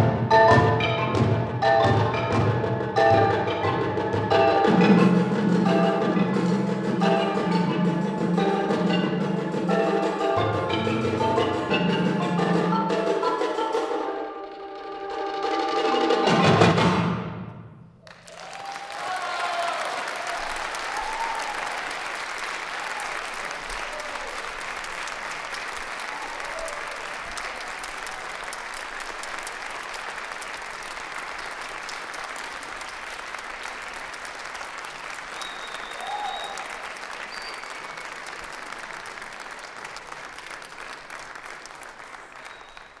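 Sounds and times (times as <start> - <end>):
audience applauding: 18.0 - 43.0
people shouting: 18.5 - 21.8.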